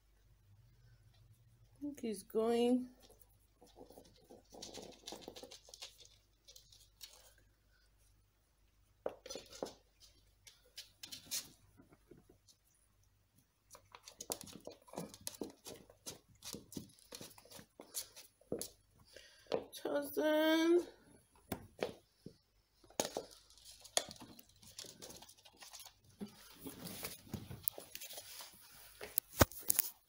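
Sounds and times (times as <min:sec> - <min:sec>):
cat claws scrabbling on wooden floor: 0:03.0 - 0:07.4, 0:09.1 - 0:12.6, 0:13.7 - 0:18.8, 0:22.8 - 0:30.0.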